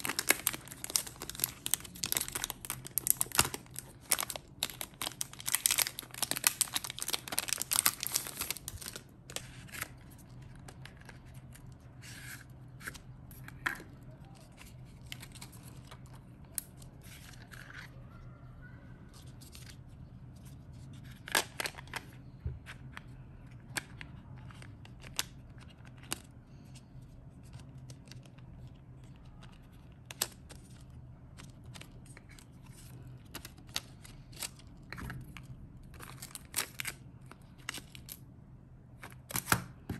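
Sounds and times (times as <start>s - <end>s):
plastic wrapper crinkling and tearing: 0.0s - 11.8s, 14.2s - 17.9s, 20.9s - 22.1s, 27.4s - 38.2s
faint low hum: 0.0s - 39.9s.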